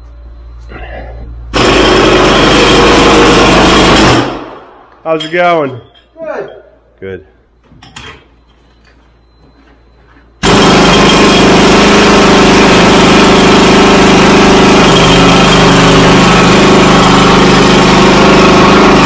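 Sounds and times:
jackhammer hammering concrete: 1.6 - 4.5, 10.4 - 19.0.

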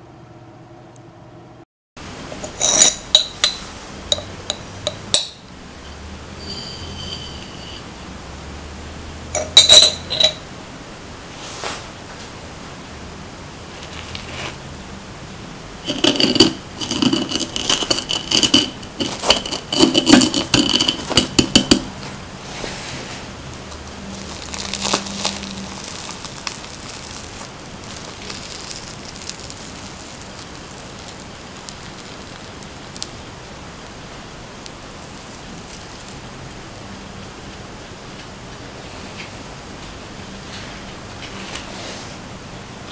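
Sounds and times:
metal spoon clinking on plate: 2.4 - 5.5, 9.4 - 10.4, 15.9 - 21.9.

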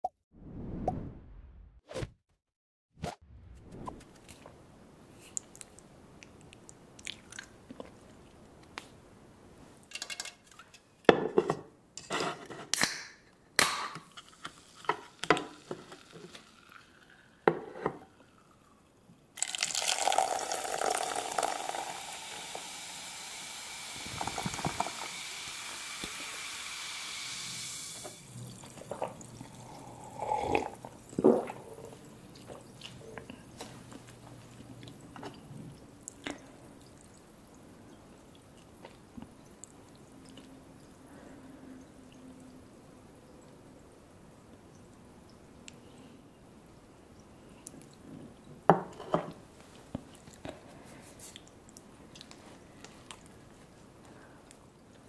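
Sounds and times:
drink pouring into metal mug: 14.8 - 17.7, 19.4 - 32.6.

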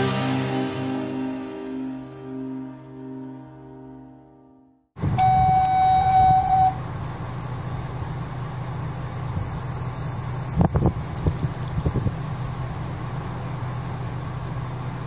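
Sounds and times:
high alert beep: 5.2 - 6.8.

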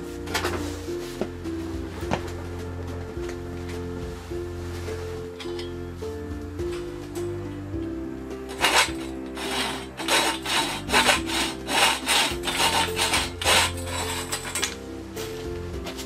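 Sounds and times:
background music: 0.0 - 16.0
hacksaw cutting copper tubing: 8.4 - 14.8.

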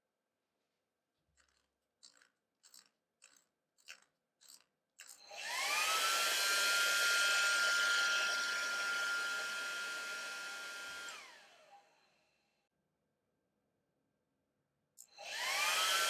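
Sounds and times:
hair dryer whining: 5.2 - 12.4, 15.2 - 16.0.

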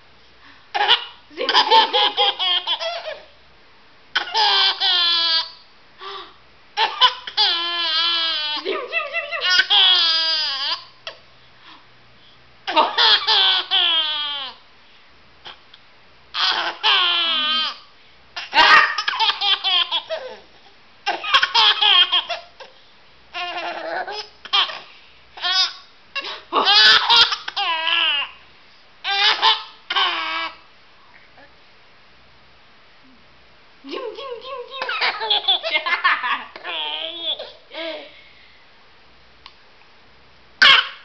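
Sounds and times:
baby laughing: 0.8 - 3.3, 4.2 - 5.6, 6.8 - 10.9, 12.7 - 14.6, 16.4 - 17.8, 18.4 - 22.7, 23.4 - 28.3, 29.0 - 30.6, 33.9 - 38.1, 40.6 - 41.0.

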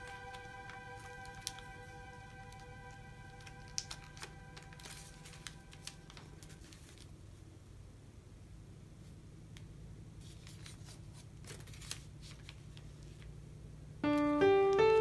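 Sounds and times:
piano melody: 0.0 - 6.8, 14.0 - 15.0
paper being creased: 3.4 - 7.2, 10.2 - 13.2.

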